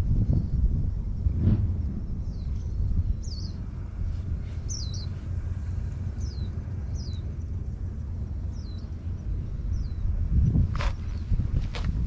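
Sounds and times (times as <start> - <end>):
wind buffeting microphone: 0.0 - 12.0
bird chirping: 2.1 - 11.4.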